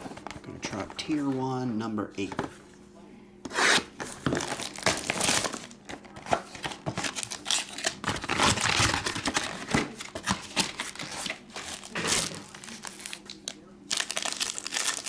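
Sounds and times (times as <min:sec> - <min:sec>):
plastic wrap crinkling: 0:04.2 - 0:15.0.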